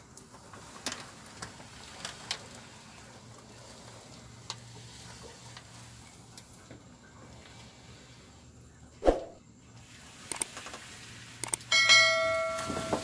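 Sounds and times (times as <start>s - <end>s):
sharp clicks: 11.4s - 11.6s.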